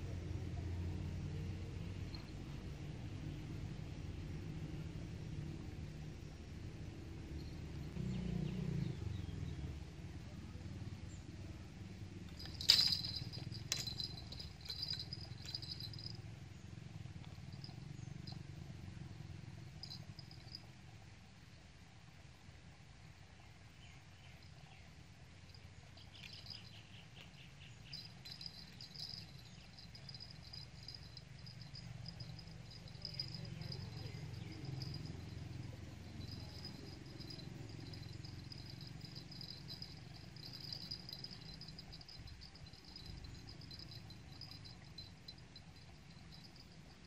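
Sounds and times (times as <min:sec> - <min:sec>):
insects trilling: 0:12.3 - 0:16.2, 0:25.5 - 0:47.0.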